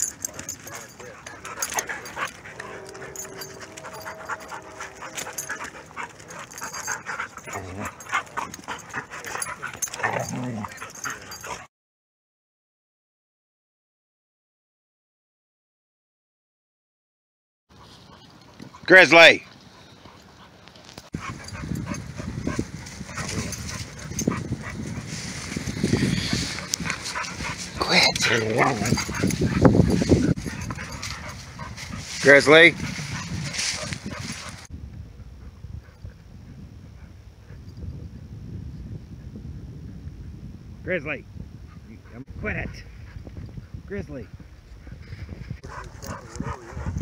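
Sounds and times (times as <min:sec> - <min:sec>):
dogs panting: 0:00.0 - 0:11.7, 0:17.7 - 0:34.7, 0:44.4 - 0:47.0
steady droning tone: 0:01.6 - 0:06.8
dogs scuffling: 0:20.1 - 0:34.7.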